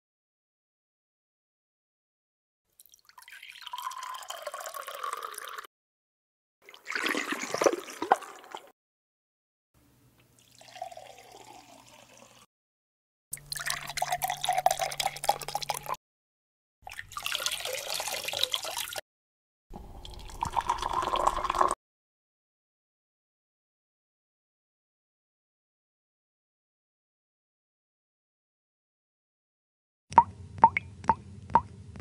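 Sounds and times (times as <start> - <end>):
water poured from a kettle: 2.8 - 5.7, 6.6 - 8.7, 10.4 - 12.5, 13.4 - 16.0, 16.9 - 19.0, 19.8 - 21.8
water poured into a glass: 2.8 - 5.7, 6.6 - 8.7, 10.4 - 12.5, 13.4 - 16.0, 16.9 - 19.0, 19.8 - 21.8
water dripping: 30.1 - 31.7.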